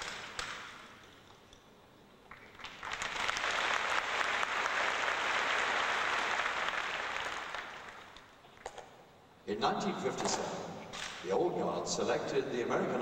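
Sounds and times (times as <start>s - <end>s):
audience applauding: 2.3s - 8.2s.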